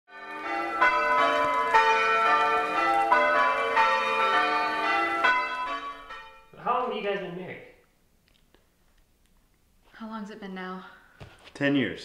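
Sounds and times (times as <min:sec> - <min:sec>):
church bells pealing: 0:00.1 - 0:07.1.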